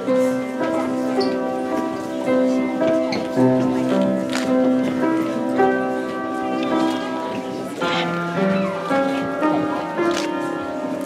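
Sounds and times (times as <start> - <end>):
upright piano chords: 0.0 - 11.0.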